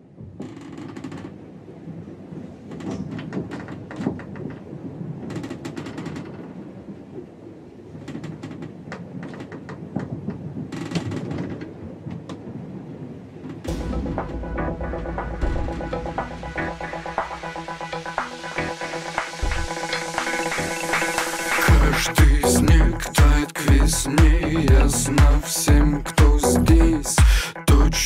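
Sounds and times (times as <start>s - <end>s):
crackles and clicks: 0.2s - 12.6s, 13.4s - 25.4s
low rumbling noise: 13.7s - 27.1s.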